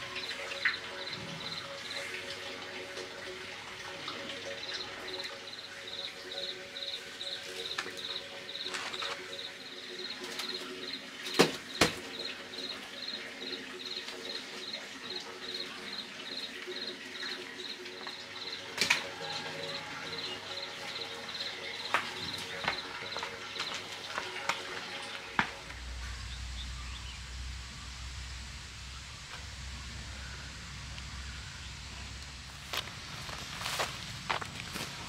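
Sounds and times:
insect chirping: 4.7 - 23.3.

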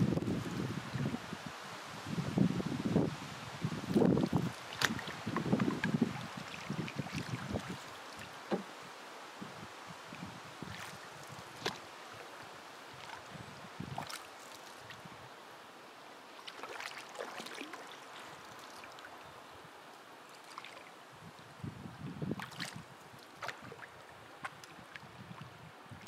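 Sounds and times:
paddle strokes splashing: 3.9 - 9.0, 10.1 - 15.1, 16.2 - 19.2, 20.2 - 21.0, 22.3 - 25.5
water lapping along hull: 3.9 - 26.0
water trickling off paddle: 4.0 - 8.9, 16.4 - 19.4, 20.0 - 21.0.

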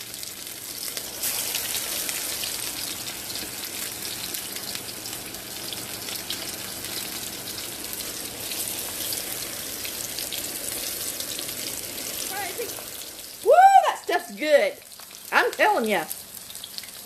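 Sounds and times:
food frying in hot oil: 0.0 - 17.0.

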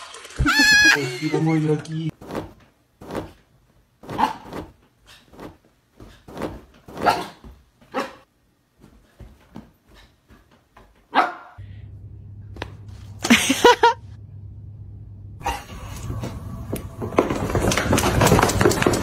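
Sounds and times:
dog barking: 4.1 - 4.7, 7.0 - 8.3, 11.1 - 11.6.

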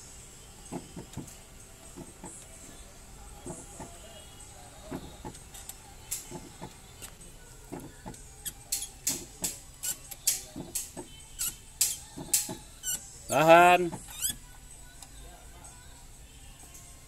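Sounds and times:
wrench clicks and squeaks: 8.4 - 13.1, 14.0 - 14.4.

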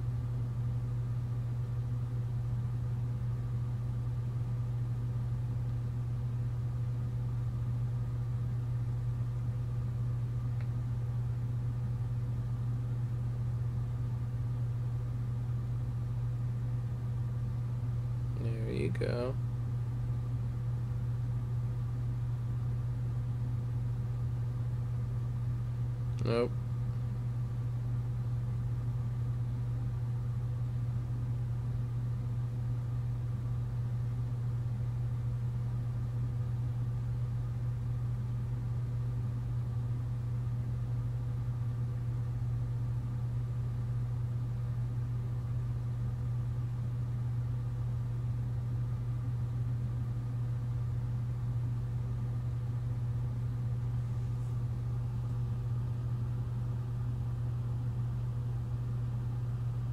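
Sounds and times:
low mechanical hum: 0.0 - 59.9.

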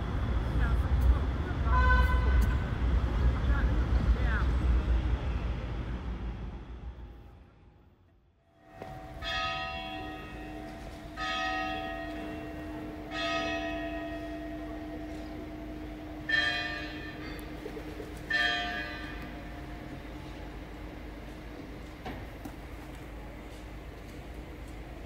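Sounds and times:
bell tolling: 8.6 - 20.2
steady low hum: 8.6 - 25.0.

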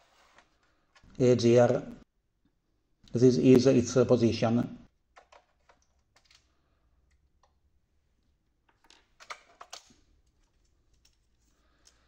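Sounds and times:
plastic clicks and rattles: 5.1 - 6.5, 8.7 - 12.0.

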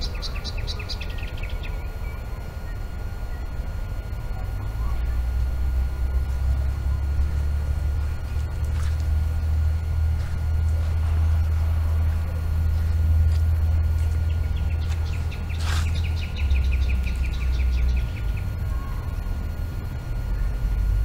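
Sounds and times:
bird chirping rapidly: 0.0 - 3.5, 14.2 - 19.0
steady low rumble: 0.0 - 21.0.

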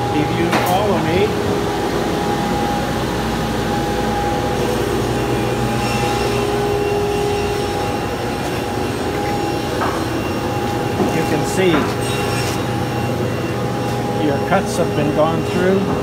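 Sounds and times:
woodworking machine droning: 0.0 - 16.0.

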